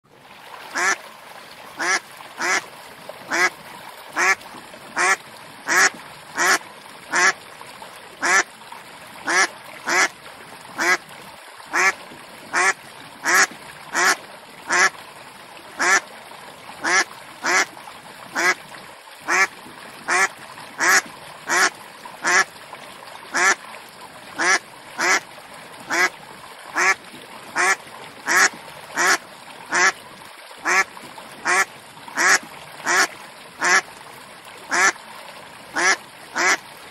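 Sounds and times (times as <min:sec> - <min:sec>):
duck quacking: 0:00.8 - 0:01.0, 0:01.8 - 0:02.6, 0:03.3 - 0:03.5, 0:04.2 - 0:04.4, 0:05.0 - 0:07.3, 0:08.2 - 0:08.4, 0:09.3 - 0:10.1, 0:10.8 - 0:11.0, 0:11.7 - 0:11.9, 0:12.5 - 0:14.9, 0:15.8 - 0:16.0, 0:16.8 - 0:17.7, 0:18.4 - 0:18.6, 0:19.3 - 0:19.5, 0:20.1 - 0:22.4, 0:23.4 - 0:23.6, 0:24.4 - 0:25.2, 0:25.9 - 0:26.1, 0:26.8 - 0:27.0, 0:27.6 - 0:29.9, 0:30.6 - 0:30.8, 0:31.4 - 0:33.8, 0:34.7 - 0:34.9, 0:35.8 - 0:36.6.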